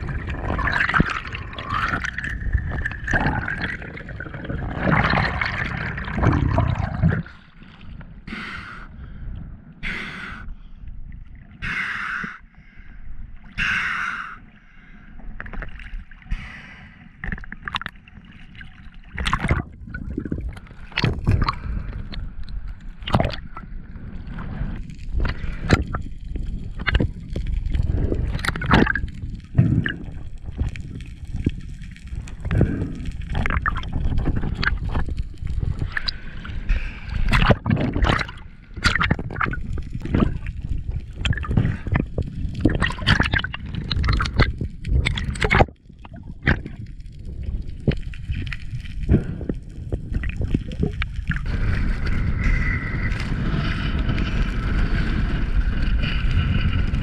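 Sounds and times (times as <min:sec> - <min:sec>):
underwater rumble: 0:00.0 - 0:57.0
knocks and rubs underwater: 0:37.3 - 0:57.0.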